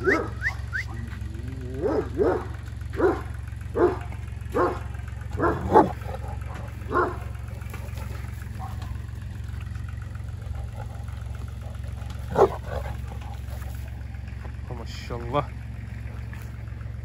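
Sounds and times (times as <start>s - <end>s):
dog barking: 0.0s - 1.0s, 1.7s - 7.3s, 8.5s - 9.0s, 12.3s - 13.0s
steady low hum: 0.0s - 17.0s.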